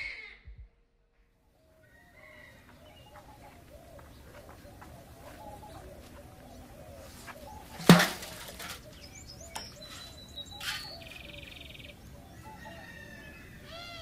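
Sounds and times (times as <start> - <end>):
birds chirping: 1.2 - 14.0
metal pot clanging on ground: 7.8 - 9.0.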